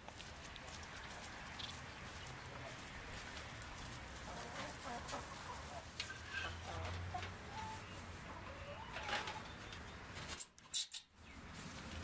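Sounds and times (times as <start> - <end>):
hens clucking: 1.2 - 9.9.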